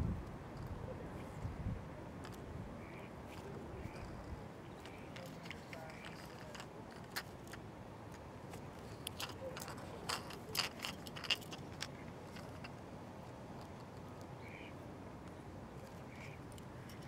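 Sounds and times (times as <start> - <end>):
outdoor background hiss: 0.0 - 17.0
small plastic clicks and rustles: 3.3 - 14.3.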